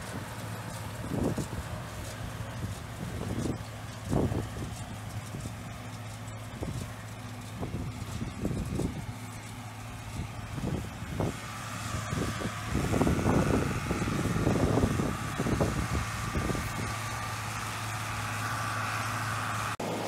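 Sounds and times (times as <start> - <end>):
tractor engine low hum: 0.0 - 20.0
baler high whine: 6.6 - 20.0.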